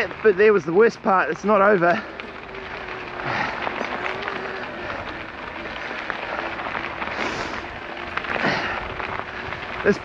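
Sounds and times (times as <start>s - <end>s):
bike rattling: 0.0s - 10.0s
tyres crunching on gravel: 0.0s - 10.0s.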